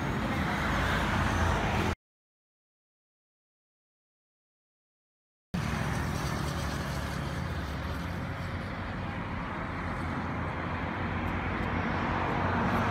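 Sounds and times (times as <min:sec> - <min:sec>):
roadside traffic rumble: 0:00.0 - 0:02.0, 0:05.6 - 0:12.9.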